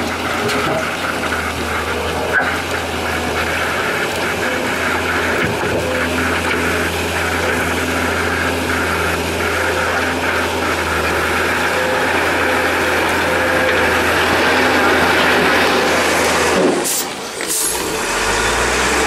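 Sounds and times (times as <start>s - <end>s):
diesel engine running: 0.0s - 19.0s.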